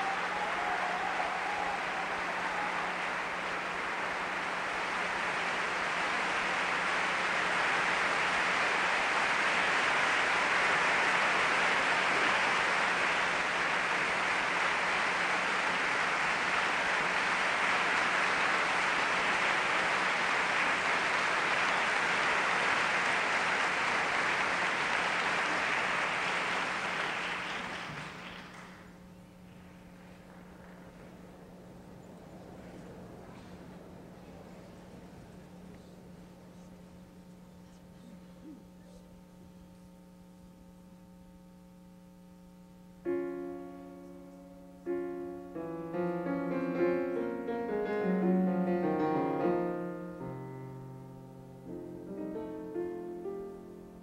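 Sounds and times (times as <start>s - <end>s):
audience applauding: 0.0s - 36.7s.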